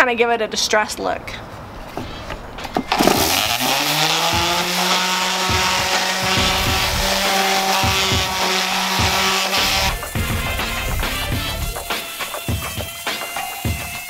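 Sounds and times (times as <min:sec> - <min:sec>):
orbital sander motor: 0:02.9 - 0:14.0
sandpaper hissing on wood: 0:03.3 - 0:14.0.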